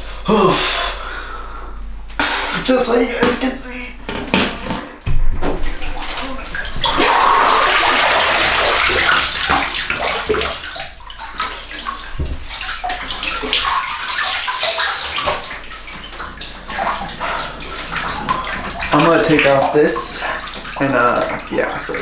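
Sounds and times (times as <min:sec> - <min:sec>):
water and ice splashing: 0:05.5 - 0:22.0.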